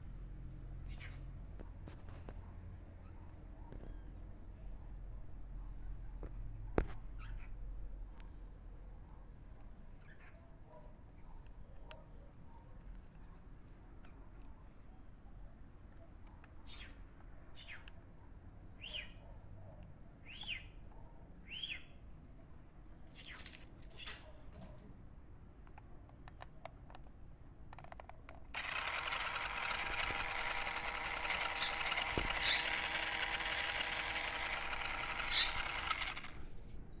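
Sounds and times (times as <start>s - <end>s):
toy electric motor and gears: 27.8s - 36.6s.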